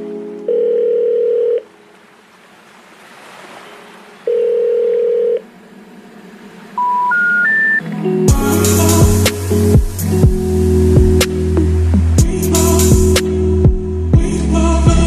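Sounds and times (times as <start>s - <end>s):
long steady telephone tone: 0.0s - 1.8s, 4.3s - 5.4s, 6.8s - 7.8s
rising telephone beeps: 4.3s - 5.4s, 6.8s - 7.8s.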